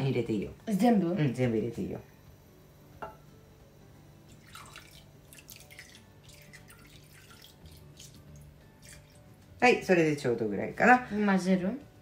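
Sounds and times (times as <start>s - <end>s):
liquid trickling and dripping: 4.3s - 9.4s.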